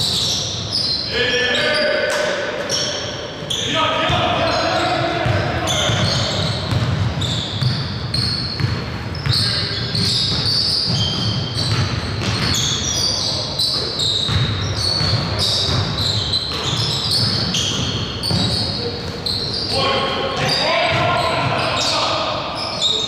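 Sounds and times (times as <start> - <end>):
sneaker squeaks: 0.0 - 23.0
basketball bouncing on court: 4.0 - 13.1, 13.7 - 19.6, 20.4 - 21.9.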